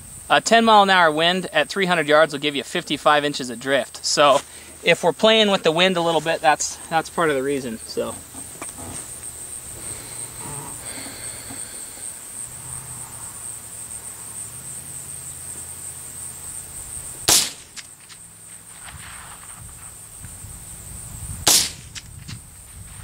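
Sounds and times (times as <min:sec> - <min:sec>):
rifle shots: 0:17.2 - 0:17.8, 0:21.4 - 0:22.1.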